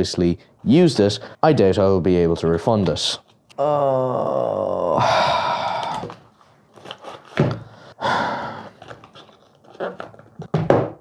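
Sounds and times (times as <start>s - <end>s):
heavy breath out: 3.6s - 6.3s, 7.5s - 9.0s.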